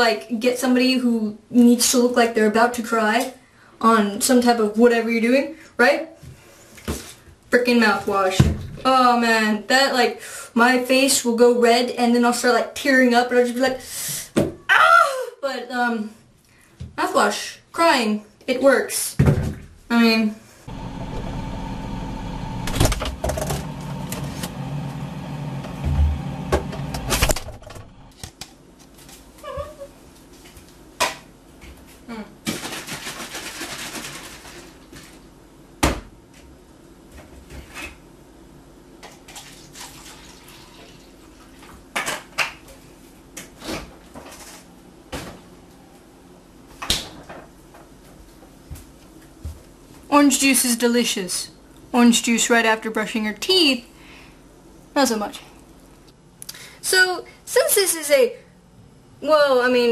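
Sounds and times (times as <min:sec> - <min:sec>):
steady hum: 0:20.4 - 0:29.0.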